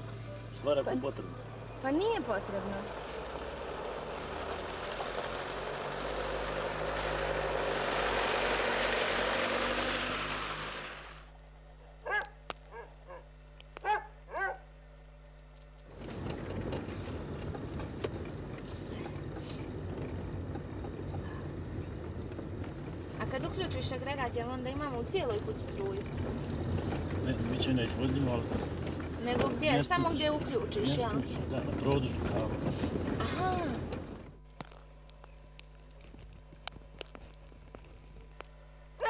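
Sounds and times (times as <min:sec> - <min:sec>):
engine and road noise inside car: 0:00.0 - 0:12.2, 0:15.8 - 0:34.6
car passing on snowy road: 0:00.7 - 0:11.3
dog yipping: 0:12.0 - 0:14.7.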